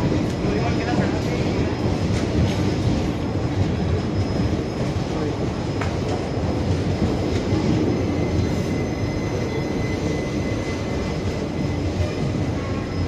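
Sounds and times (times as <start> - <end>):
train wheels rumbling on rails: 0.0 - 13.0
faint wheel squeal: 3.9 - 13.0.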